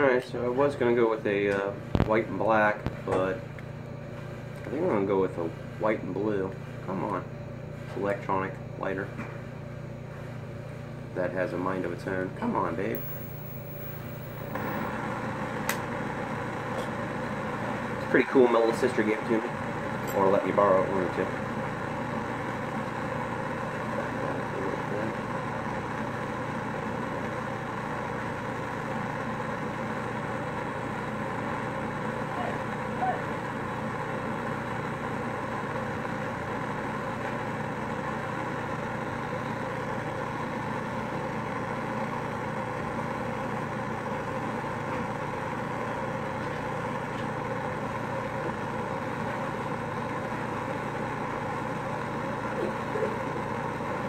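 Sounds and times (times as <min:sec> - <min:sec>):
gas torch flame hissing: 0:12.9 - 0:16.0.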